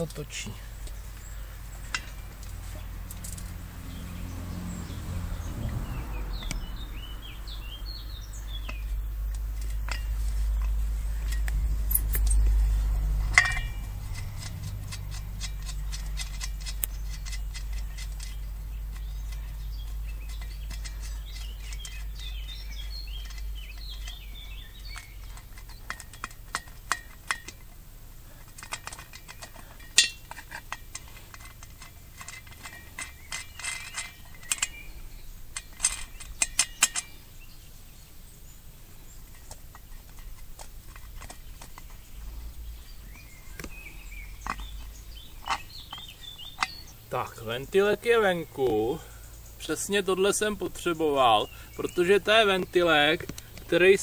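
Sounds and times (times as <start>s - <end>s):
low rumble: 0.0s - 21.7s
small birds chirping: 0.0s - 54.0s.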